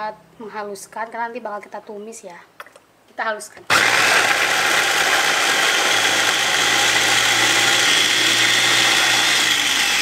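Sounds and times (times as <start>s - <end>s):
electric food chopper whirring: 3.7s - 10.0s.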